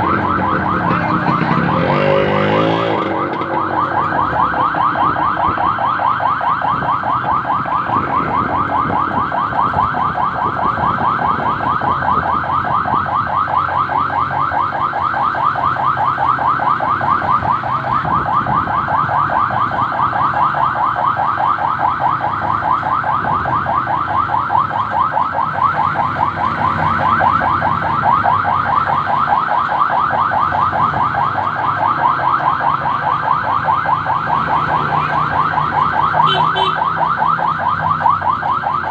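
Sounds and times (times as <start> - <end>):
motorcycle engines running: 0.0 - 5.7
electronic siren yelping: 0.0 - 38.9.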